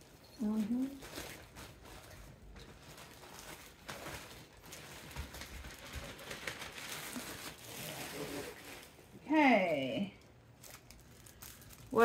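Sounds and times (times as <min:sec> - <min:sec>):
packaging rustling: 0:00.0 - 0:09.1, 0:10.5 - 0:12.0.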